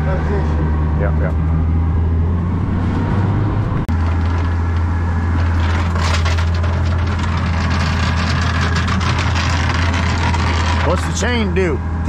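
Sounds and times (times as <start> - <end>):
outboard motor droning: 3.9 - 12.0.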